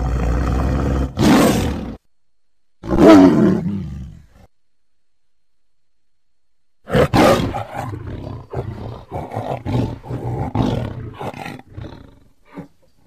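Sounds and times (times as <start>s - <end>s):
tiger roaring: 0.0s - 2.0s, 2.8s - 4.4s, 6.9s - 13.0s.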